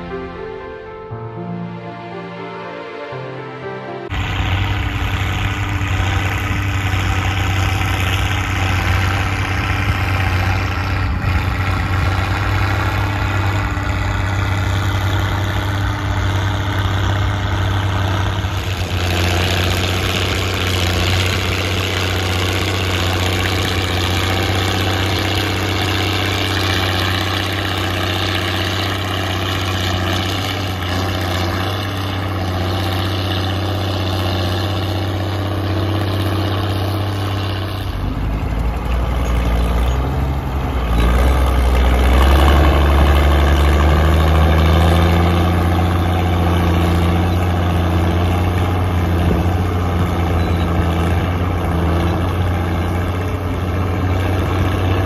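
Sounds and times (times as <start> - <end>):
tractor diesel engine under load: 0.0 - 2.7, 3.5 - 55.0.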